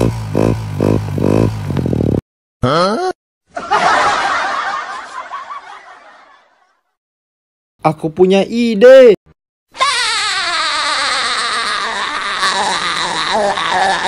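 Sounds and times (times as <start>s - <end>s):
snickering laughter effect: 10.0s - 14.0s.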